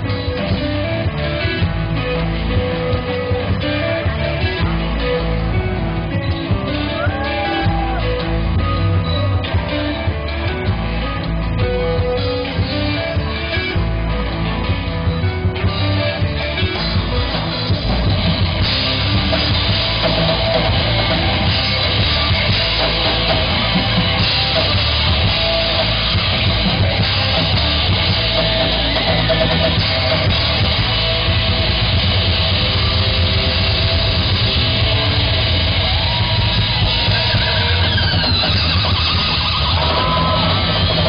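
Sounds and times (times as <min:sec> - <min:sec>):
live rock band playing: 0:00.0 - 0:41.0.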